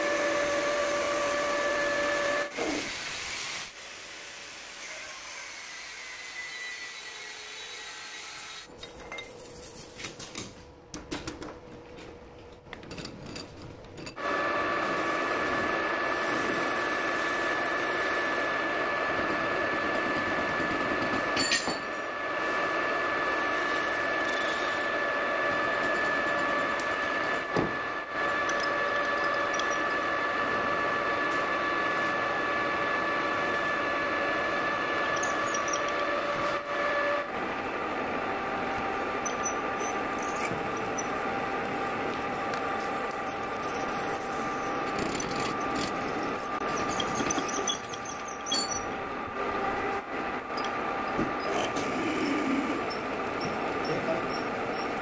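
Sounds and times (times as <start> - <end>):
metal lathe whining: 0.0 - 2.8, 14.2 - 55.0.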